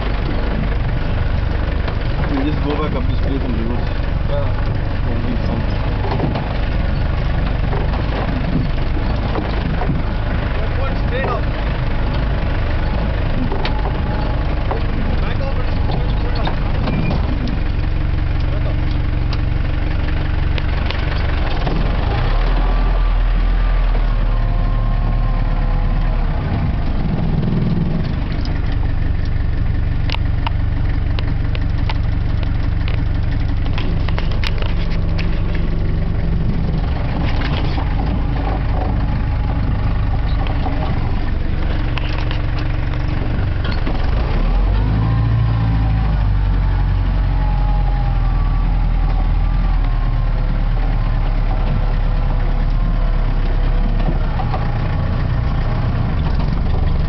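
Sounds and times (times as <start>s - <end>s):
jeep engine running: 0.0s - 57.0s
vehicle knocks and rattles: 0.0s - 57.0s.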